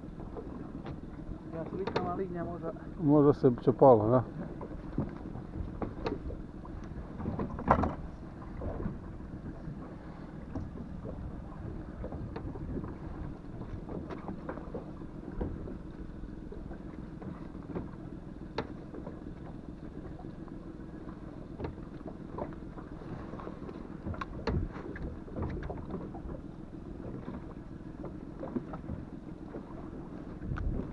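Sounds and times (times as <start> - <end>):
water against boat hull: 0.0 - 30.9
wind on microphone: 4.9 - 14.1, 30.2 - 30.9.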